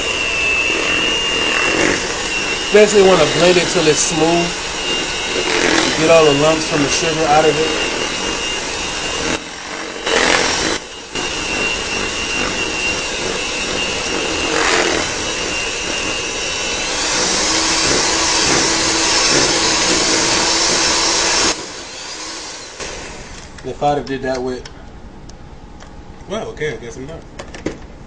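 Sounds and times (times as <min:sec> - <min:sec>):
electric mixer whirring: 0:00.0 - 0:23.6.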